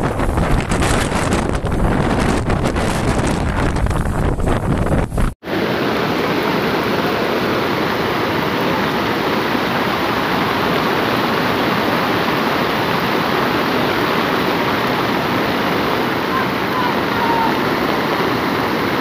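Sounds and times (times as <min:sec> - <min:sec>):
wind buffeting microphone: 0:00.0 - 0:19.0
floodwater rushing: 0:05.4 - 0:19.0.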